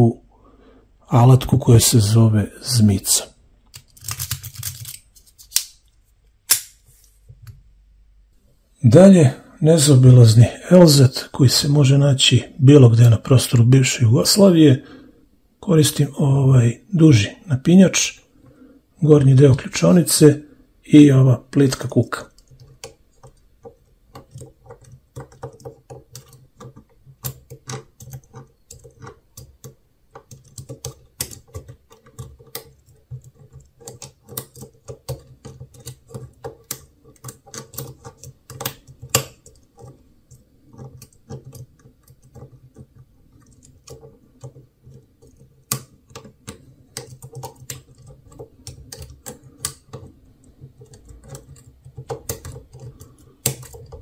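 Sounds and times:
lock pick clicking and scraping: 3.7s - 5.8s, 22.3s - 54.0s.

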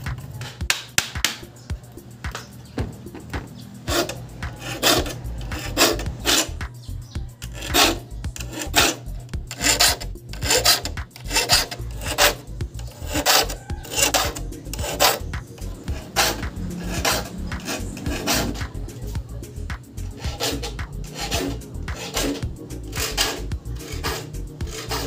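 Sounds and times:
file rasping on saw teeth: 3.8s - 6.7s, 7.4s - 18.8s, 20.1s - 25.0s.

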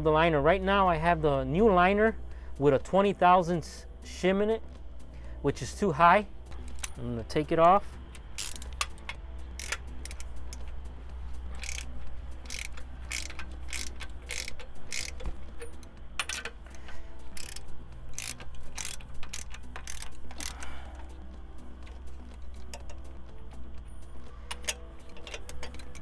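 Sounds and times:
steady low hum: 0.8s - 26.0s
ratchet wrench clicking: 8.3s - 10.7s, 11.6s - 21.2s, 21.9s - 23.1s, 24.4s - 26.0s.

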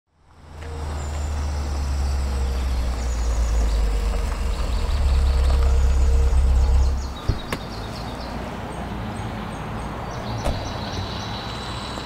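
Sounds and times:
low engine-like rumble: 0.2s - 7.8s.

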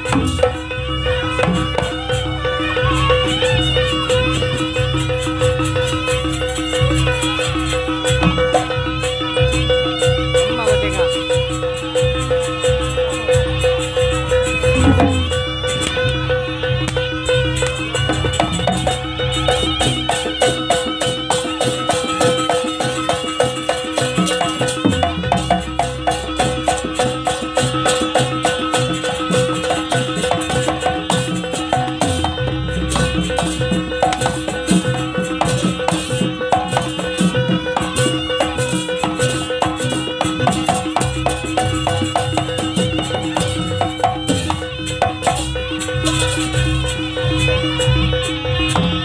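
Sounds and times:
gamelan music with fast percussion: 0.0s - 49.0s
low drumming: 13.0s - 20.7s.

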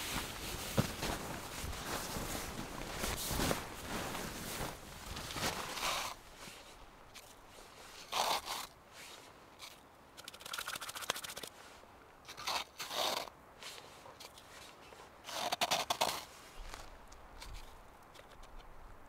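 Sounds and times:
metal cup scraping crusty snow: 5.4s - 6.2s, 8.0s - 9.8s, 12.3s - 16.8s.

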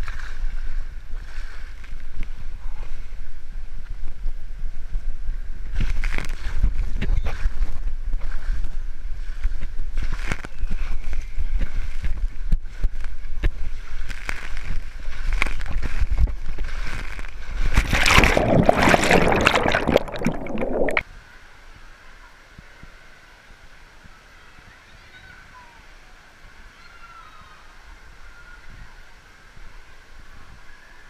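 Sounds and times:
water rushing in slide tube: 15.3s - 21.0s
loud splash and churning water: 16.9s - 21.0s
water park hall background: 21.1s - 31.0s.

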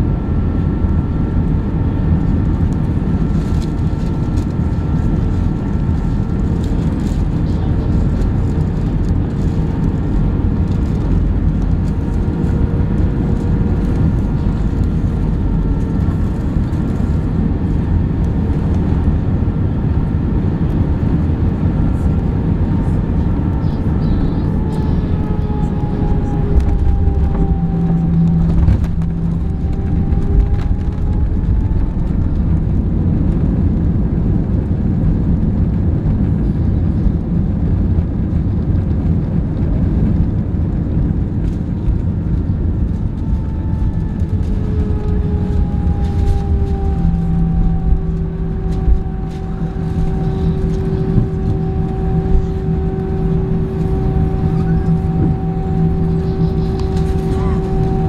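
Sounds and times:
airplane cabin engine noise: 0.0s - 58.0s.

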